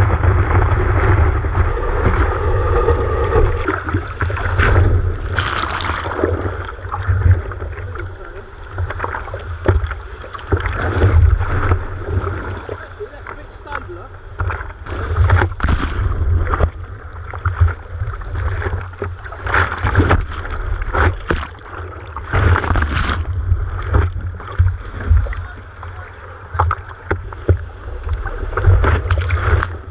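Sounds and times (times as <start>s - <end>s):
steady low rumble: 0.0s - 29.9s
water splashing against camera: 0.1s - 29.9s.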